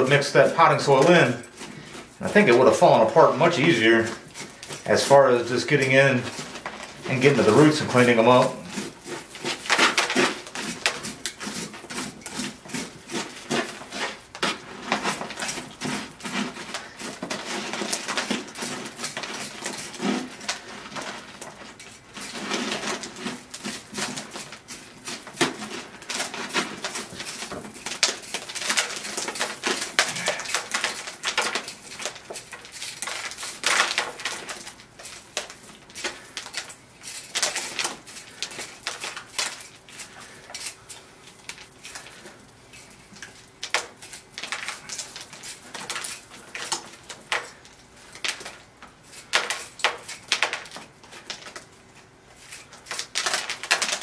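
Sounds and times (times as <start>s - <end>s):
soil scraping and rustling: 0.0s - 54.0s.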